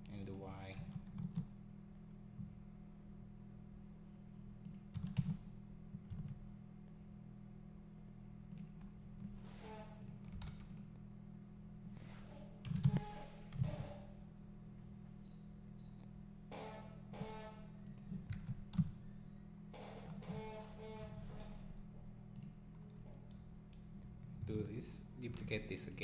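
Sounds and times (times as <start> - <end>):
steady low hum: 0.0 - 26.0
keyboard keystrokes: 4.6 - 5.4.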